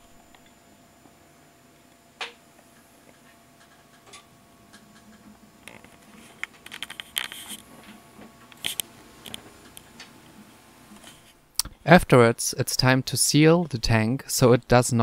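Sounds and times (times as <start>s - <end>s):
camera handling clicks and scrapes: 6.2s - 7.6s.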